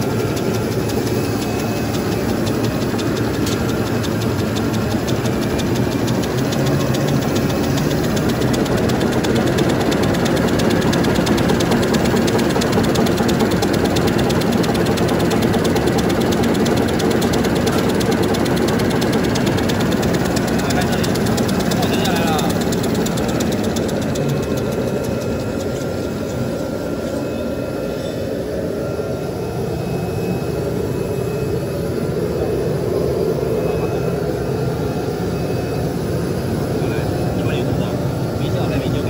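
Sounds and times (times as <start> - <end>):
folding machine rhythmic clatter: 0.0 - 28.7.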